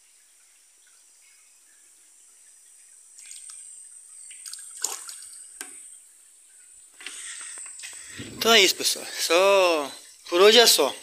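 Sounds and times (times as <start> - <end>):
water splashing: 3.1 - 11.0.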